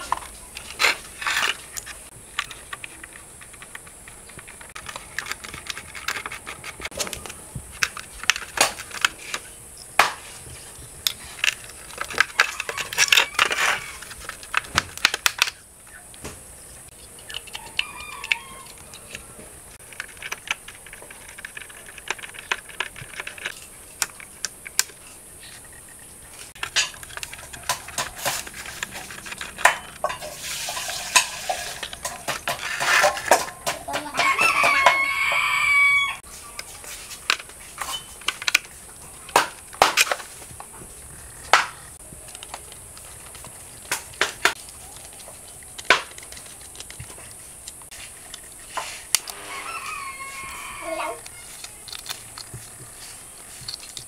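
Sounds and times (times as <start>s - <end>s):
metal parts clattering on concrete: 26.5s - 35.2s.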